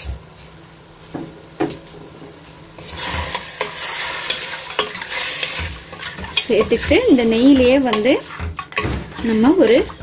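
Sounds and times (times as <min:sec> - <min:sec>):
meat sizzling in ghee: 0:00.4 - 0:10.0
spatula scraping pot: 0:02.8 - 0:10.0.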